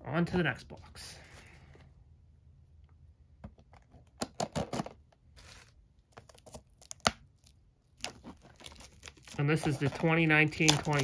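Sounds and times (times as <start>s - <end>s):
plastic wrap crinkling and tearing: 5.4s - 11.0s
knife slitting plastic wrap: 8.6s - 11.0s.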